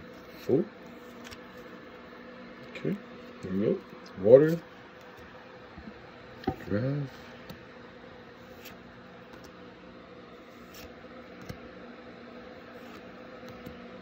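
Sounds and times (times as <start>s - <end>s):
steady low hum: 0.0s - 14.0s
trading cards rustling and clicking: 0.1s - 1.8s, 10.5s - 11.8s, 12.6s - 14.0s.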